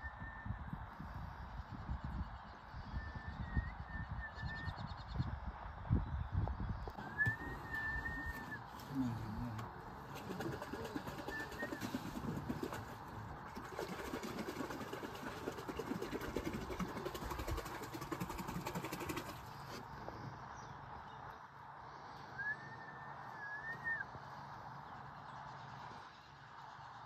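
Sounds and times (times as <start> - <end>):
bird whistled call: 0.0 - 0.6, 2.8 - 5.0, 7.0 - 9.0, 10.8 - 12.4, 22.3 - 24.2.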